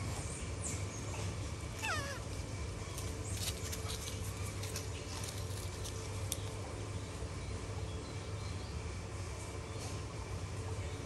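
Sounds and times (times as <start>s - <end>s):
steady low hum: 0.0s - 11.0s
baby monkey call: 1.8s - 2.3s.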